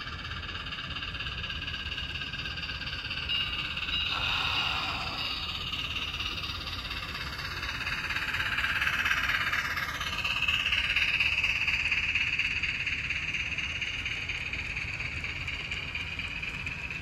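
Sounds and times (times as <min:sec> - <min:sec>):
model train wheels rolling on rails: 0:00.0 - 0:11.5.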